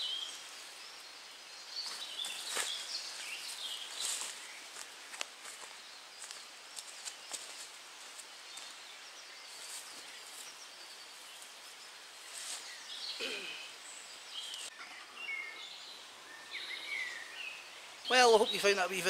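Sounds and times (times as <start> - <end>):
footsteps crunching on dry leaves: 1.8 - 8.9, 9.5 - 10.6
birds chirping and calling: 8.6 - 19.0.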